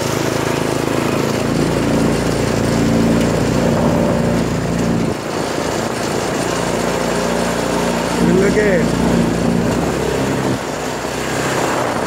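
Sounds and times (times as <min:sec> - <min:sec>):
go-kart engine running: 0:00.0 - 0:12.0.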